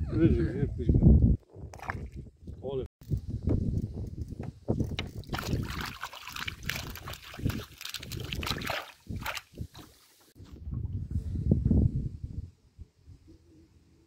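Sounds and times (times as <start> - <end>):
water sloshing and trickling: 4.7 - 10.6
splashes: 5.3 - 10.1.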